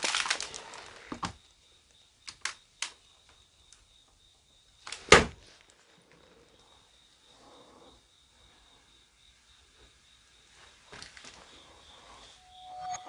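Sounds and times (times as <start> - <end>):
rummaging in plastic crate: 0.0 - 1.4.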